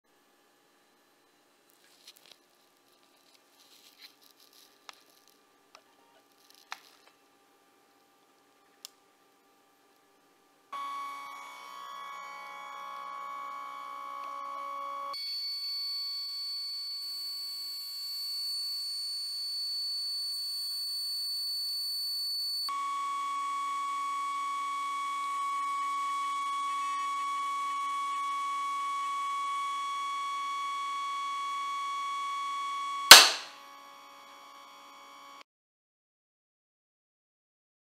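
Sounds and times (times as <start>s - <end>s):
faint hum: 0.1s - 19.7s
stepper motor whining: 22.7s - 35.4s.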